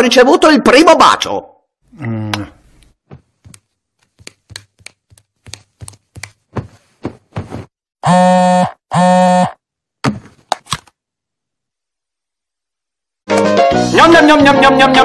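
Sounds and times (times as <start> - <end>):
mobile phone buzzing: 8.0 - 9.6.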